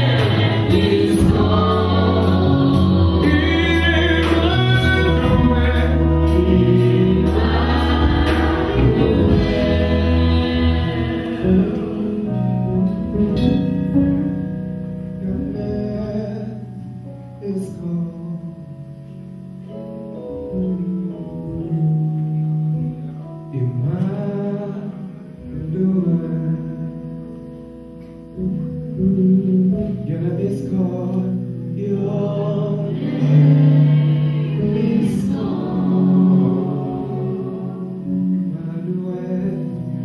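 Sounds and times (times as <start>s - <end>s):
strong bass line: 0.0s - 17.1s
gospel singing with band: 0.0s - 18.8s, 23.5s - 27.0s, 28.4s - 40.0s.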